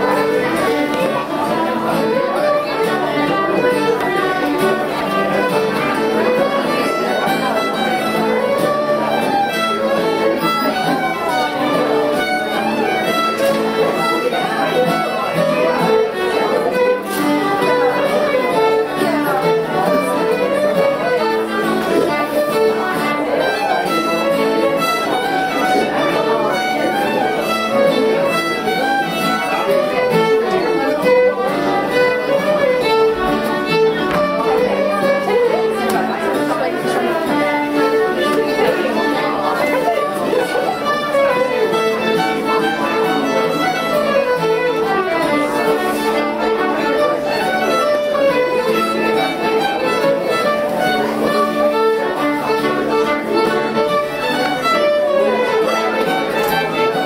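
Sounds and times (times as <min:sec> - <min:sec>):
acoustic string music with fiddle: 0:00.0 - 0:57.0.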